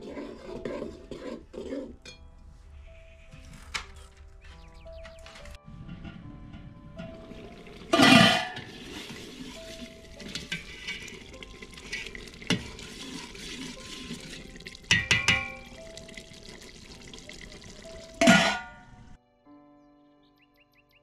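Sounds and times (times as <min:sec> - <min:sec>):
soft background music: 0:00.0 - 0:21.0
pot lid clanking: 0:05.7 - 0:15.9, 0:18.0 - 0:19.2
spoon knocking in pot: 0:14.2 - 0:16.2.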